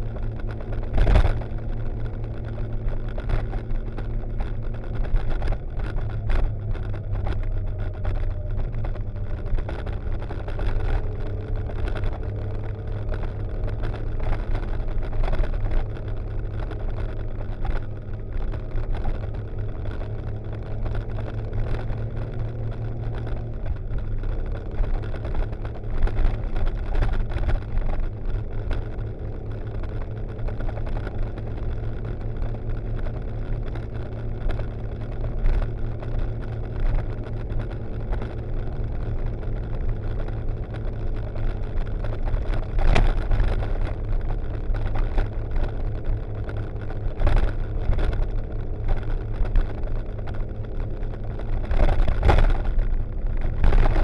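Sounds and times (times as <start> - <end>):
motorcycle engine cruising: 0.0 - 54.0.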